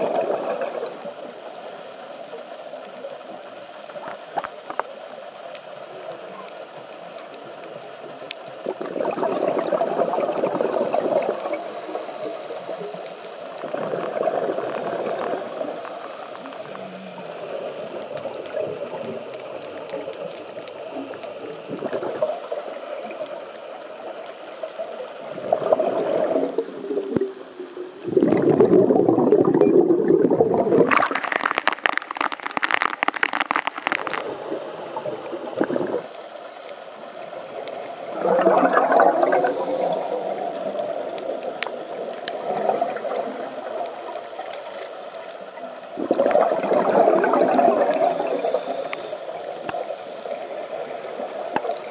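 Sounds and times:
regulator exhaust bubbles gurgling: 28.0s - 34.2s, 35.4s - 36.1s, 38.1s - 39.6s, 46.0s - 48.5s
hissing water splash: 28.0s - 36.1s, 38.0s - 41.0s.

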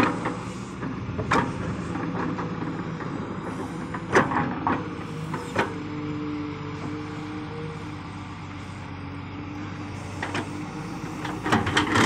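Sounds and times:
excavator diesel hum: 0.0s - 12.0s
metallic clanks from excavator bucket: 11.3s - 12.0s.

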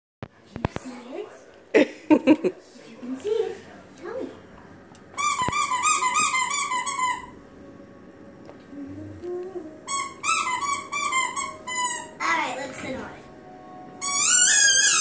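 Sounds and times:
squeaky dog toy squeaking: 5.2s - 7.4s, 9.9s - 12.3s, 14.0s - 15.0s.

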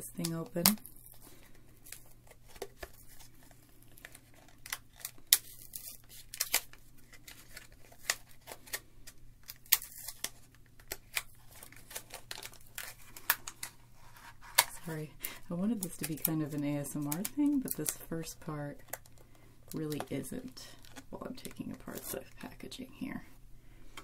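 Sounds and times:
packaging tearing and crinkling: 0.2s - 14.9s, 20.7s - 22.2s.

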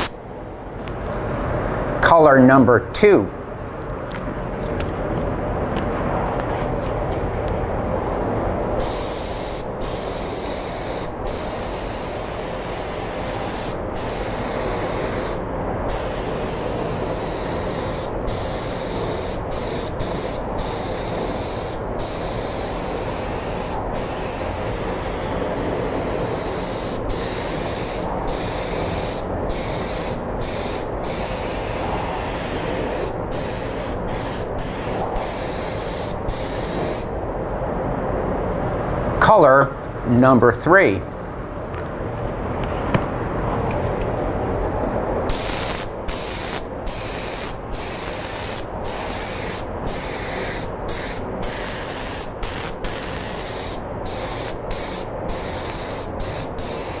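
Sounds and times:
steady low rumble: 2.9s - 8.9s, 9.7s - 45.3s
spray gun hissing: 8.8s - 37.1s, 45.3s - 57.0s.

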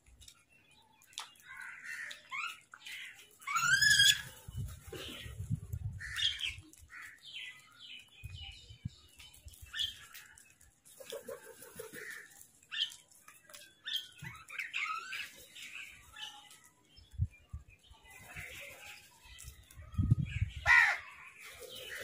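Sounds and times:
crows cawing: 20.6s - 21.1s.

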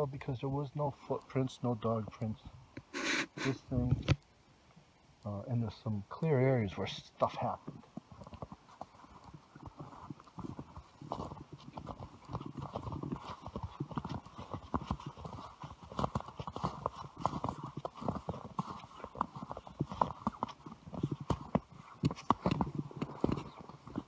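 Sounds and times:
footsteps crunching in snow: 8.6s - 24.0s.

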